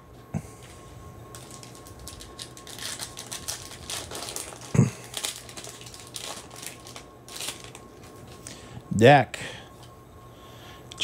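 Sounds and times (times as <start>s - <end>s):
foil wrapper crinkling: 1.3s - 8.6s.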